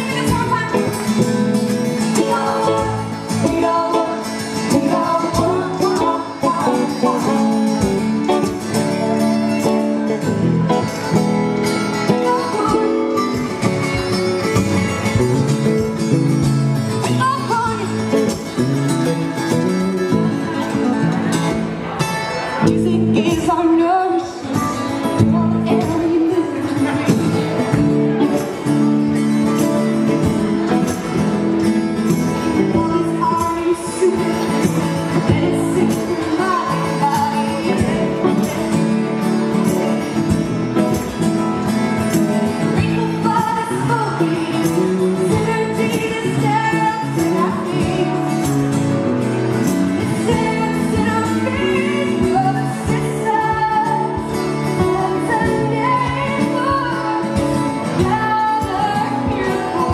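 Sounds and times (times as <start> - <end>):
woman singing: 0.0 - 9.6, 12.0 - 14.0, 17.0 - 18.5, 22.6 - 28.4, 32.2 - 39.3, 42.5 - 49.0, 49.9 - 59.9
acoustic guitar: 0.0 - 59.9
banjo: 0.0 - 59.9.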